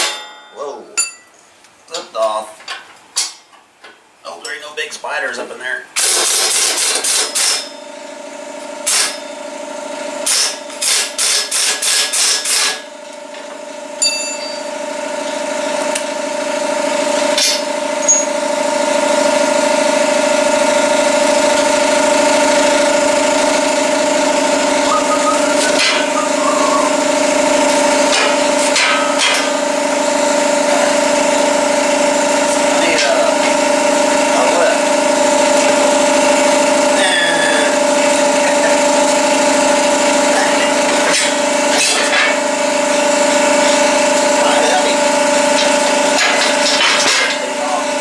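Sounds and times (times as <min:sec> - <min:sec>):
impact wrench hammering: 0:00.0 - 0:00.4, 0:06.0 - 0:07.8, 0:10.2 - 0:12.9, 0:17.3 - 0:18.4, 0:21.4 - 0:29.8, 0:45.5 - 0:47.4
air compressor humming: 0:00.0 - 0:48.0.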